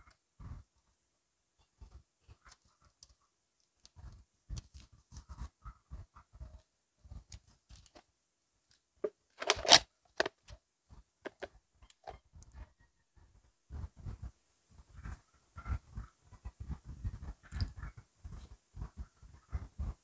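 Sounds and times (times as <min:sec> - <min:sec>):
plastic cup being handled: 0:09.0 - 0:10.6, 0:11.3 - 0:12.2
packaging tearing open: 0:09.4 - 0:09.8
soft handling clicks and knocks: 0:11.3 - 0:12.2.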